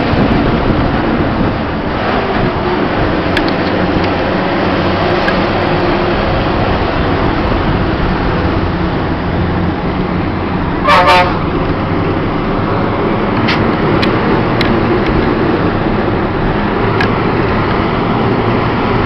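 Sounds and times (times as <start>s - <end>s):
bus engine running: 0.0s - 19.0s
road noise: 0.0s - 19.0s
vehicle horn toot: 10.8s - 11.4s.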